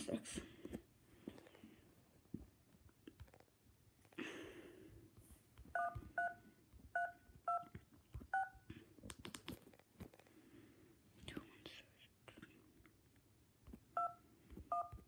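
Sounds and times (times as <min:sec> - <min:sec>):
touch-tone dial beeps: 0:05.8 - 0:06.4, 0:08.3 - 0:08.6, 0:14.0 - 0:15.0.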